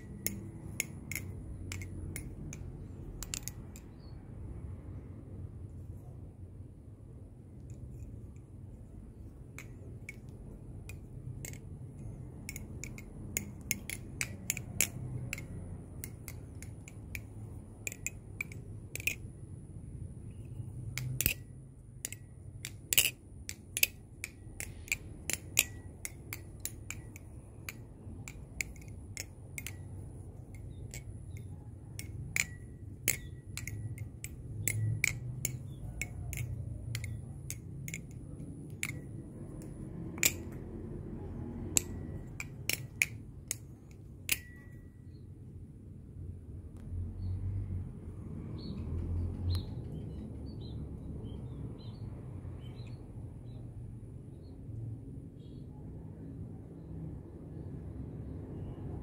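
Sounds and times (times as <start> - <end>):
balisong trainer clicking and clacking: 0.0 - 4.6, 7.5 - 45.2.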